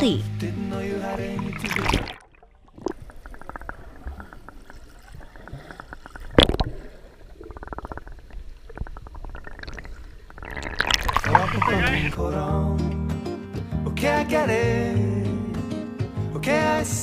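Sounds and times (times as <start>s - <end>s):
muffled underwater gurgling: 0.8s - 12.2s
small clicks and bubbles: 1.4s - 12.2s.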